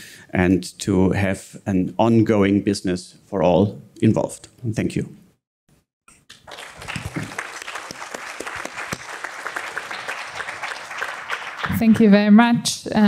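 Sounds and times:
applause: 0:06.3 - 0:12.3.

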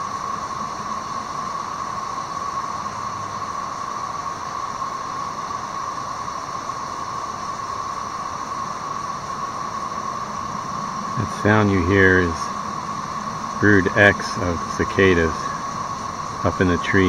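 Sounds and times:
cicadas droning: 0:00.0 - 0:17.0.

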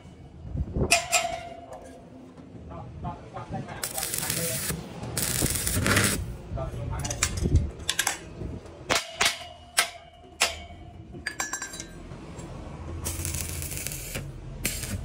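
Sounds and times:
welding arc hissing and crackling: 0:03.8 - 0:06.3, 0:13.0 - 0:15.0
hammer tapping steel frame: 0:08.9 - 0:11.9.

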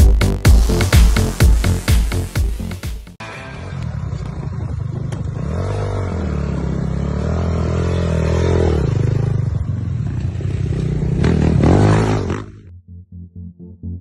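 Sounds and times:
dirt bike engine revving: 0:03.7 - 0:12.7.

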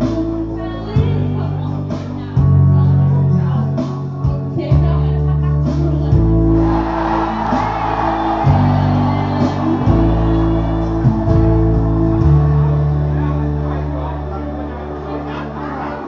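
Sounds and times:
karaoke backing track: 0:00.0 - 0:16.0
men singing and shouting: 0:06.5 - 0:13.1.

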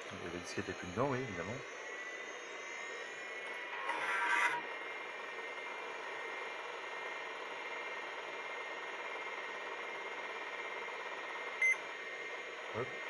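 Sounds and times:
computer fan and hard disk hum: 0:00.0 - 0:13.0.

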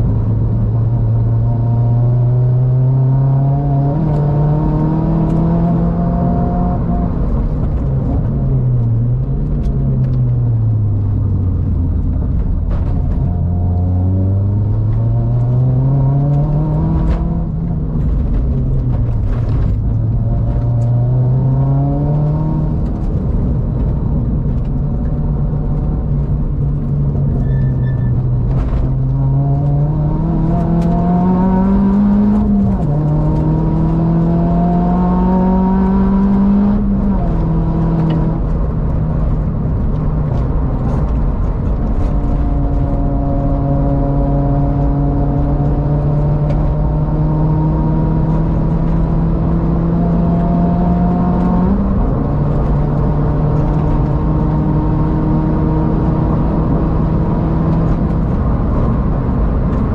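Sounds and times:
car engine accelerating: 0:00.0 - 0:59.9
road and tyre noise: 0:00.0 - 0:59.9.

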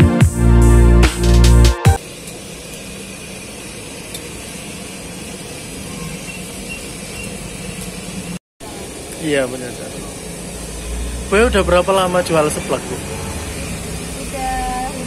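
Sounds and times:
background music: 0:00.0 - 0:02.0
wok steaming on a stove: 0:02.0 - 0:15.0.

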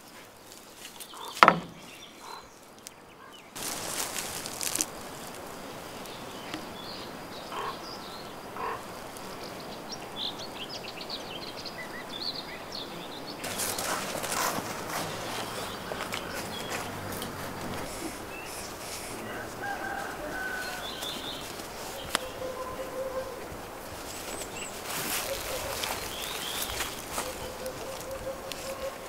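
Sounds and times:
steady background hiss: 0:00.0 - 0:29.0
high chirping of small animals: 0:05.9 - 0:23.5, 0:24.2 - 0:29.0.

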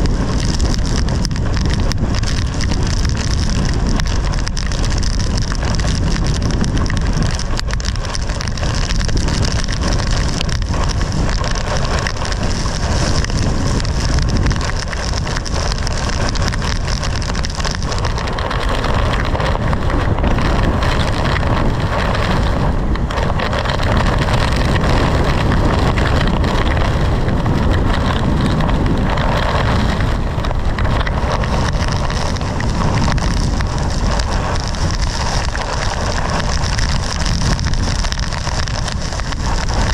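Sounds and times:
rain and hail on car: 0:00.0 - 0:39.9
storm wind rumble: 0:00.0 - 0:39.9.

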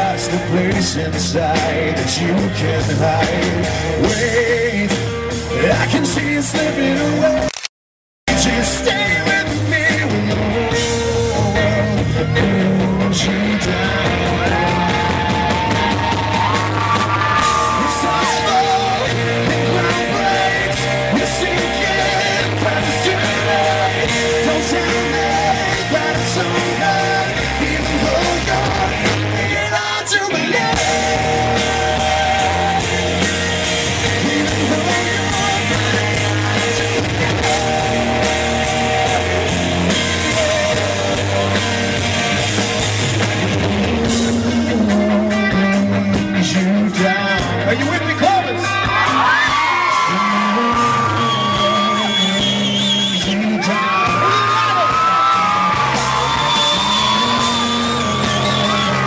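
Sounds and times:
live rock band playing: 0:00.0 - 0:07.5, 0:08.3 - 0:59.0
person singing: 0:00.0 - 0:07.5, 0:08.3 - 0:15.8, 0:16.4 - 0:41.7, 0:43.4 - 0:59.0.

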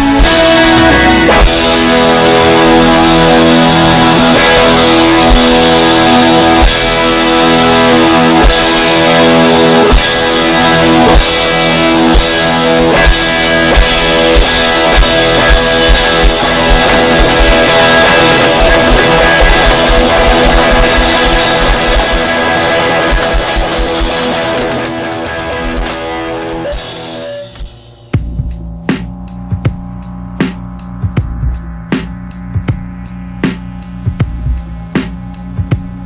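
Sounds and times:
rock music with guitars and drums: 0:00.0 - 0:36.0
kick drum: 0:34.0 - 0:34.8, 0:35.6 - 0:36.0.

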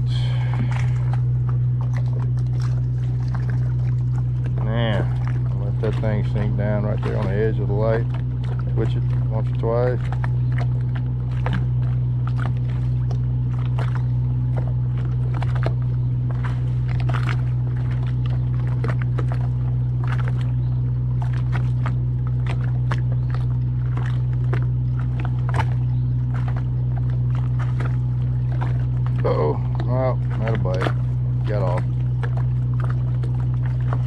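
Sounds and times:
boat machinery humming: 0:00.0 - 0:34.0.

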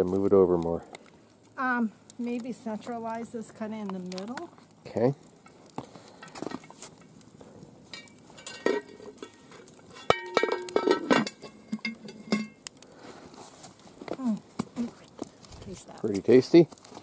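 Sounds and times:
light metal clinks: 0:07.9 - 0:12.6
metal lid clanking onto cauldron: 0:08.0 - 0:12.6.

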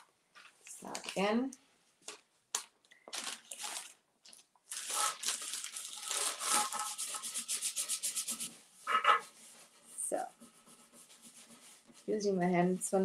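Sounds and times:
paper scraping: 0:04.7 - 0:12.1
hands rubbing paper: 0:04.7 - 0:13.0.

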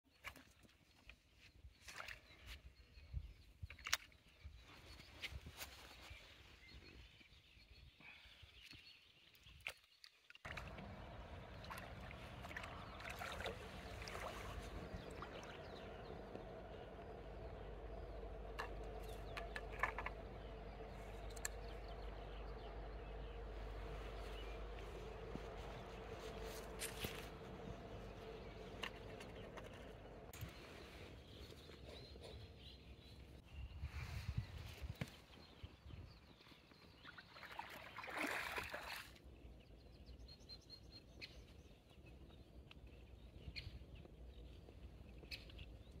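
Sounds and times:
low steady rumble: 0:10.5 - 0:33.4
steady low hum: 0:10.5 - 0:33.4
faint clicks and ticks: 0:14.6 - 0:30.4.

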